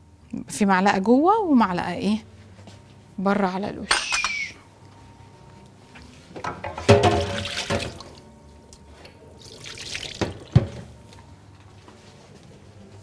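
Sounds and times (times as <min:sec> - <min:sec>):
kitchenware clattering: 0:03.9 - 0:04.5, 0:06.4 - 0:07.9.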